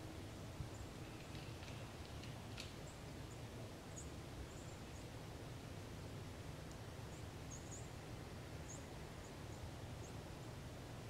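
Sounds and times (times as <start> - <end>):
small birds chirping: 0.7 - 5.2, 7.0 - 8.0.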